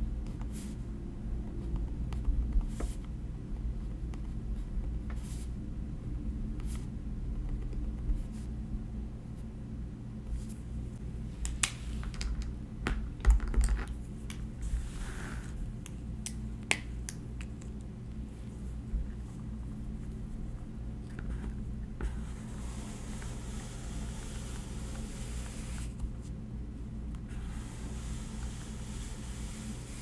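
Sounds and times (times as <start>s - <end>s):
low room hum: 0.0s - 30.0s
soft scratch: 27.3s - 30.0s.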